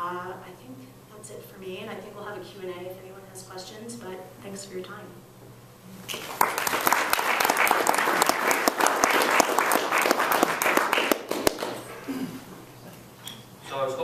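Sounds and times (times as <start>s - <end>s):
audience applauding: 6.1s - 12.0s.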